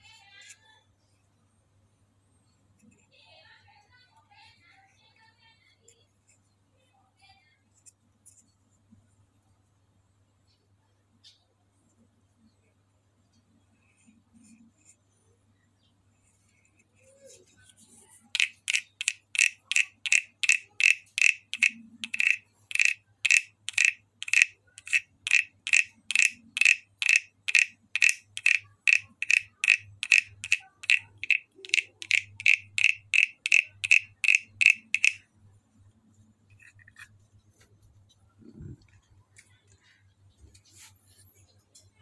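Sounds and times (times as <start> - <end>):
wooden frog guiro clicks: 18.3 - 35.2.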